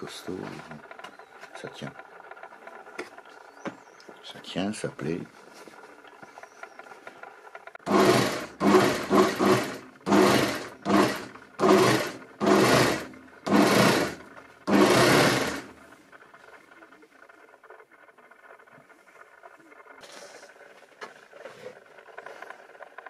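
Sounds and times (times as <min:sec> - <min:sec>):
sewing machine stitching: 0:07.8 - 0:15.9.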